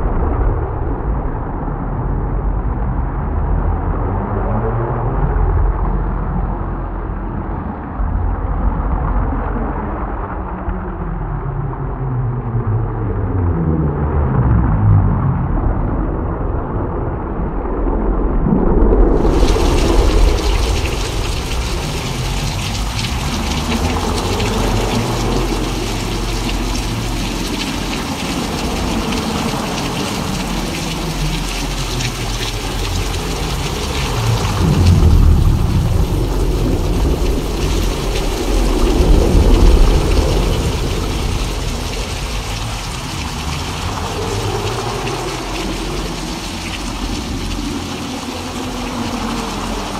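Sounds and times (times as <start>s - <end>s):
thunder rumbles: 15.5s - 49.9s
rain hiss: 19.0s - 49.9s.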